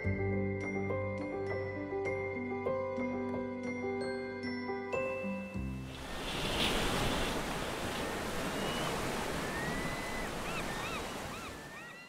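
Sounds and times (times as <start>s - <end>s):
sea water washing: 5.9s - 12.0s.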